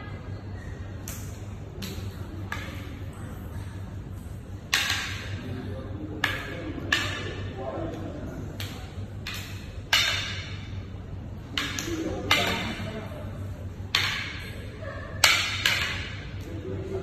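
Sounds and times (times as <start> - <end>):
low steady hum: 0.0 - 17.0
sticks clacking together: 1.0 - 5.4, 6.2 - 13.1, 13.9 - 14.6, 15.2 - 16.6.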